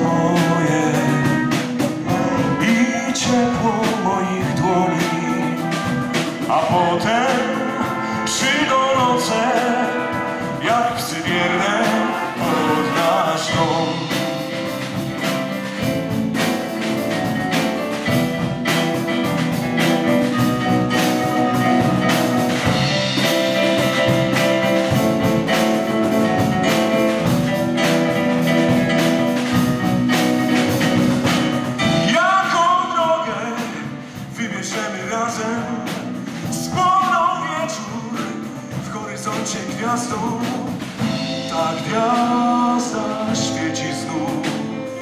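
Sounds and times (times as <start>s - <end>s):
man singing: 0.0s - 17.4s, 30.6s - 45.0s
big band playing: 0.0s - 45.0s
drum strokes: 0.0s - 45.0s.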